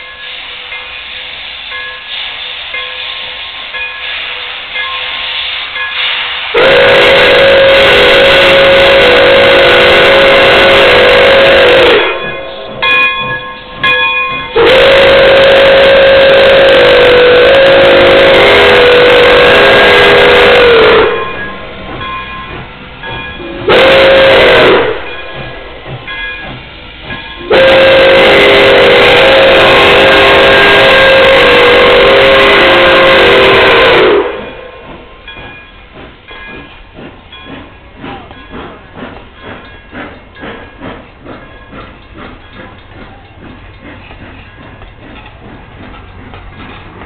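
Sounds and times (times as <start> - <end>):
train wheels clickety-clack: 0.0 - 47.0
steam whistle blasts: 6.5 - 12.8, 14.5 - 21.6, 23.4 - 25.4, 27.4 - 34.9.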